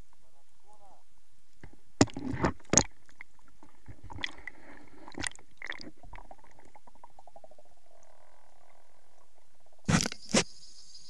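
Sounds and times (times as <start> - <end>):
underwater knocks and gurgles: 2.0 - 9.5.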